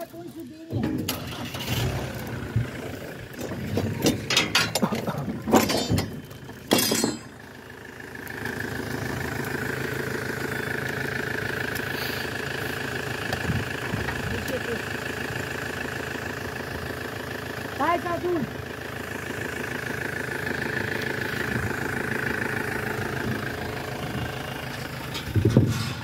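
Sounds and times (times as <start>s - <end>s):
wood and metal clattering: 0.0s - 7.5s, 23.1s - 26.0s
ferry engine idling: 0.0s - 26.0s.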